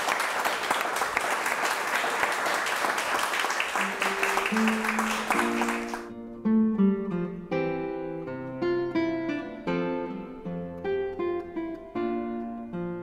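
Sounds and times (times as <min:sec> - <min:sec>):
audience applauding: 0:00.0 - 0:06.1
plucked acoustic guitar music: 0:04.1 - 0:13.0.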